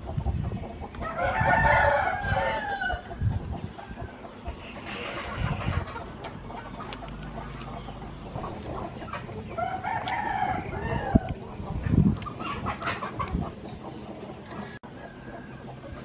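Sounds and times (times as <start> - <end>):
rooster crowing: 1.0 - 3.1, 9.6 - 11.3.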